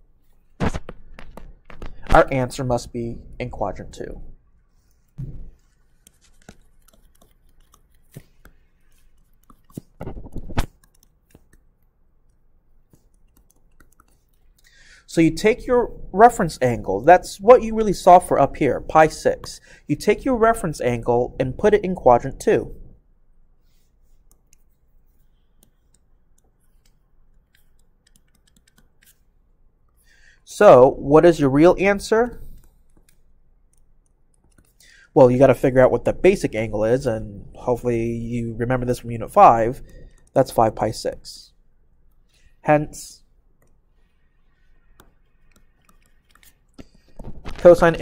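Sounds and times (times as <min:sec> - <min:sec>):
stylus tapping on tablet screen: 0:00.6 - 0:02.1, 0:44.8 - 0:47.3.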